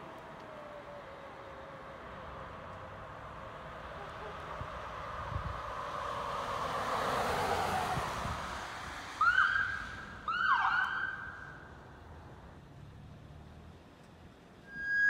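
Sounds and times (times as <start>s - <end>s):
vehicle passing: 1.8s - 10.3s.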